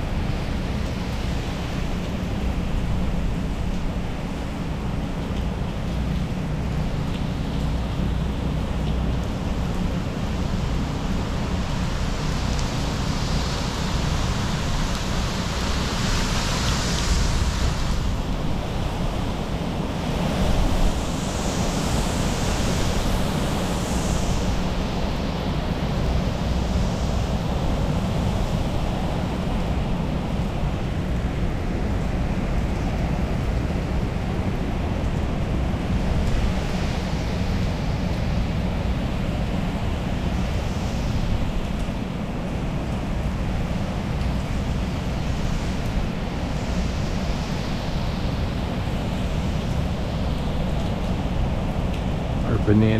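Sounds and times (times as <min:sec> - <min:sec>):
heavy rain: 0:00.0 - 0:52.9
storm wind gusting: 0:09.4 - 0:52.9.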